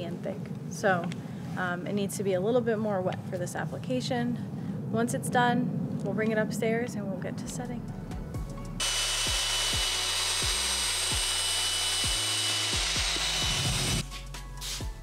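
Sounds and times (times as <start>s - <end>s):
drill motor whine: 8.8s - 14.0s.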